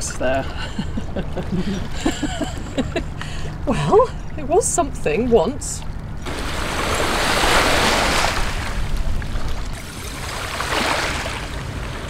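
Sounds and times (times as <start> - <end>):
waves washing on shingle: 6.2 - 12.0.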